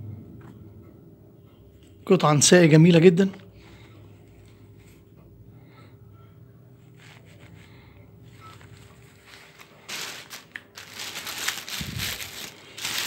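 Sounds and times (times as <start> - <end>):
plastic bags crinkling: 8.3 - 13.0.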